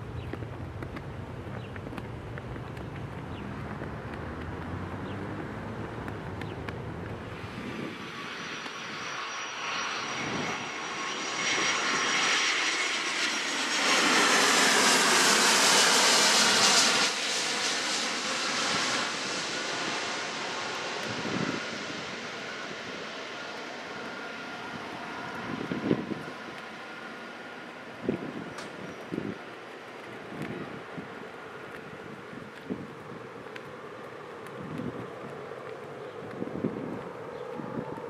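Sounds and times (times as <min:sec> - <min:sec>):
distant jet airliner rumble: 0:00.0 - 0:38.0
jet passing low overhead: 0:00.0 - 0:38.0.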